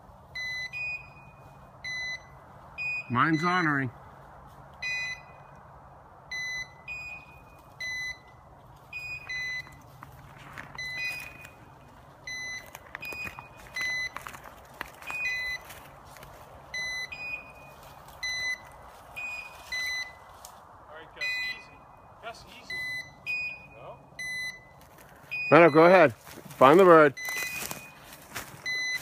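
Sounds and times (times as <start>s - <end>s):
twigs snapping and rustling: 27.2s - 29.0s.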